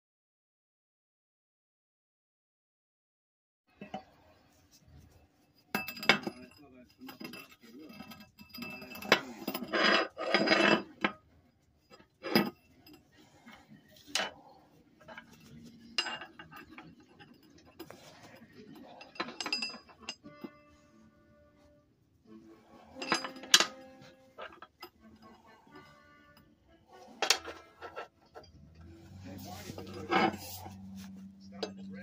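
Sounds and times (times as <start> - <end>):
metal pipe clanking on table: 5.7 - 11.2, 15.1 - 20.7, 22.9 - 26.4, 27.2 - 28.6.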